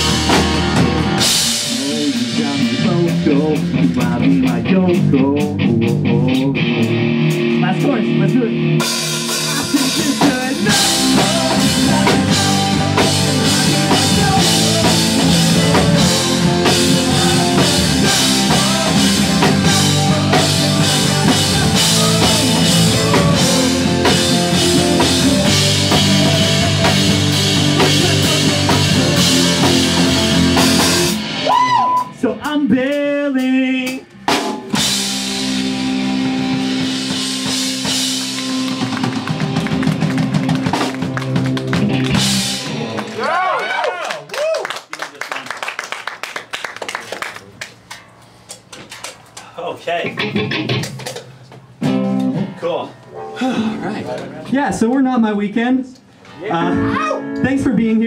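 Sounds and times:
pop-punk band playing live: 0.0 - 43.3, 50.0 - 54.6.

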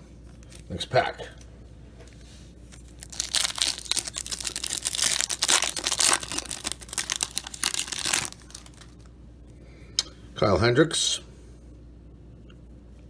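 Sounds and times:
plastic wrapper tearing and crinkling: 2.8 - 9.1.

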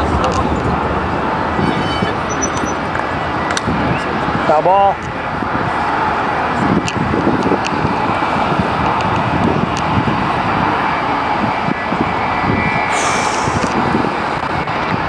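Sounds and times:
loud engine drone: 0.0 - 15.0
short hiss: 12.9 - 13.7.

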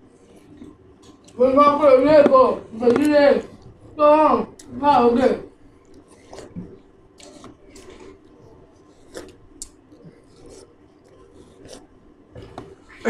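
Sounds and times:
wet chewing mouth sounds: 5.5 - 13.0.

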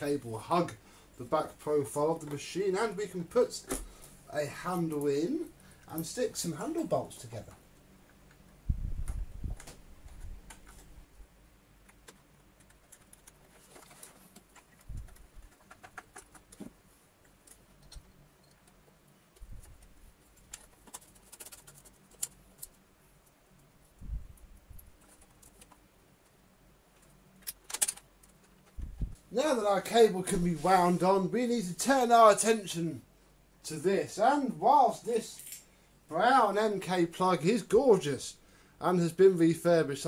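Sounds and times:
plastic parts clicking: 19.4 - 22.8, 27.0 - 28.8.

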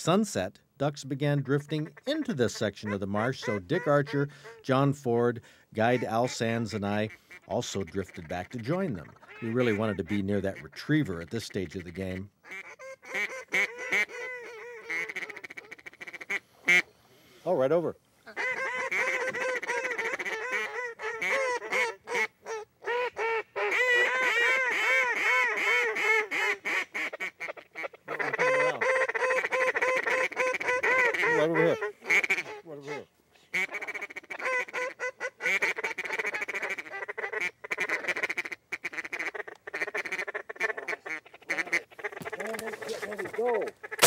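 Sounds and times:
duck quacking rapidly: 1.4 - 5.2, 5.8 - 16.9, 18.3 - 44.0.

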